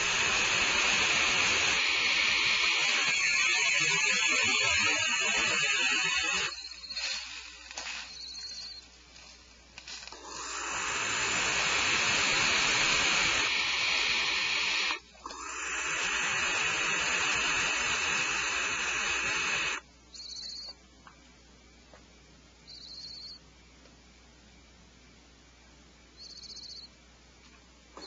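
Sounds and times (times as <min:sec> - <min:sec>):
high-pitched bird calls: 0:00.0 - 0:08.9, 0:19.6 - 0:20.8, 0:22.7 - 0:23.4, 0:26.2 - 0:26.9
owl nestlings hissing: 0:00.0 - 0:20.7, 0:26.2 - 0:26.9.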